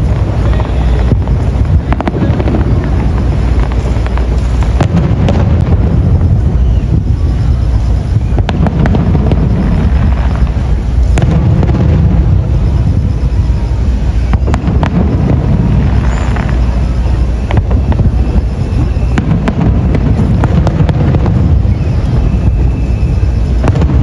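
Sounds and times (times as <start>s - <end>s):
firework booms rumbling: 0.0s - 24.0s
sharp firework cracks: 0.0s - 24.0s.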